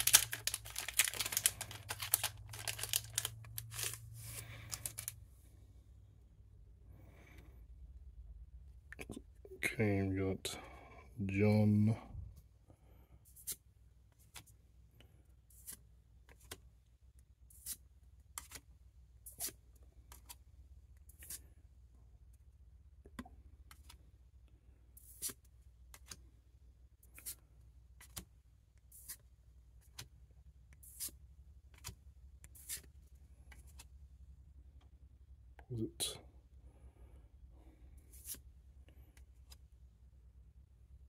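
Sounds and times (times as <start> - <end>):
trading cards flipped by hand: 0.0 - 5.2, 13.3 - 14.6, 15.6 - 16.6, 18.4 - 18.7, 25.0 - 26.2, 28.0 - 28.3, 28.9 - 29.2, 29.8 - 30.1, 30.8 - 33.9, 38.1 - 38.5.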